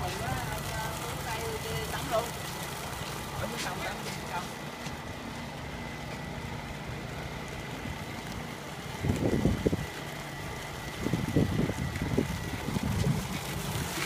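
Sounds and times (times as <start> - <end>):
engine running with low hum: 0.0 - 14.0
wind buffeting microphone: 8.9 - 14.0.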